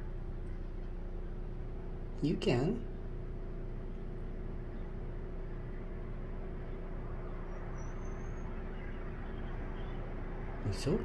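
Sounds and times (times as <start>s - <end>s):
low motor hum: 0.0s - 11.0s
faint high whistle: 7.5s - 10.0s.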